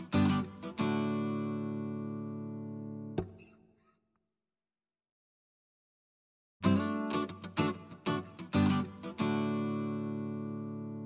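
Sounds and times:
guitar chord ringing: 6.6s - 11.0s.

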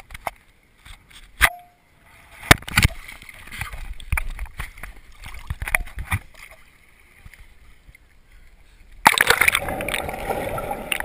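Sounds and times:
underwater churning and bubbles: 2.0s - 11.0s
loud splash into water: 9.0s - 11.0s.

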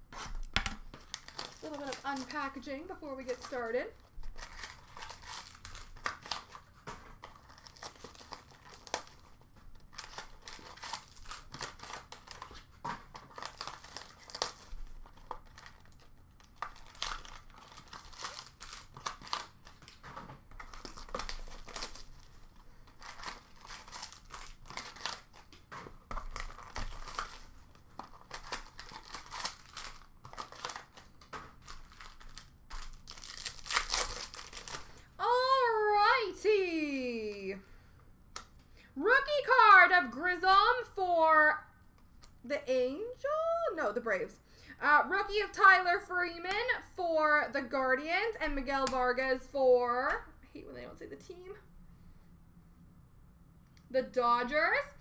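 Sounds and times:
plastic wrapping crinkling and tearing: 0.1s - 36.1s.

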